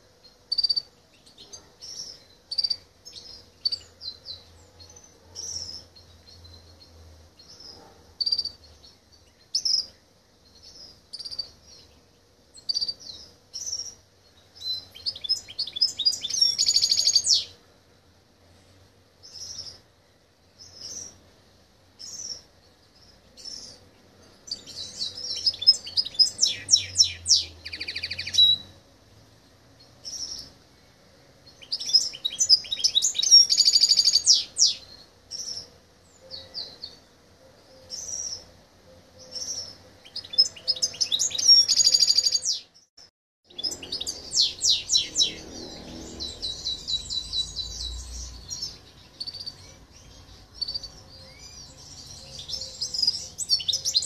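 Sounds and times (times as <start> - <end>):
bird chirps: 0.3 - 17.6, 22.0 - 28.8, 31.5 - 42.9, 43.5 - 54.0
bird twittering and trilling: 14.6 - 17.6, 24.4 - 28.8, 31.5 - 37.0, 39.2 - 42.9, 43.5 - 54.0.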